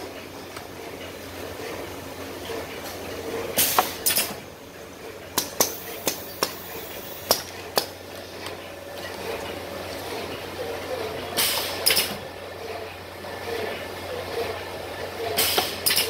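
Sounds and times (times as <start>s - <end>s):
steady machine hum: 0.0s - 15.9s
riveting machine metallic clicks: 3.6s - 4.4s, 11.4s - 12.2s, 15.4s - 16.0s.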